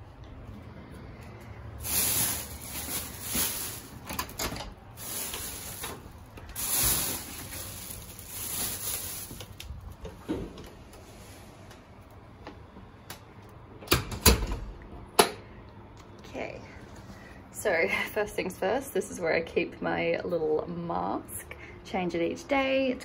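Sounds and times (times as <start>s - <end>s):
plastic bag rustling and crinkling: 1.8s - 10.4s.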